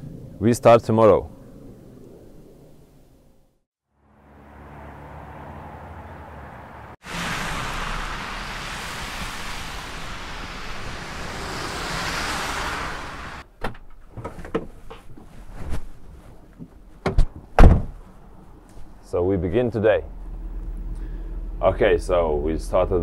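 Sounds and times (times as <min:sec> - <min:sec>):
passing cars hissing: 0:04.1 - 0:13.4
knocks and clunks: 0:13.5 - 0:15.9, 0:16.6 - 0:18.0.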